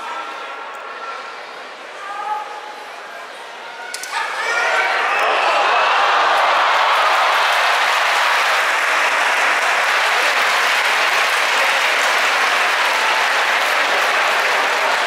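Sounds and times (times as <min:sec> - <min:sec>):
crowd applauding and cheering: 0:04.6 - 0:15.0.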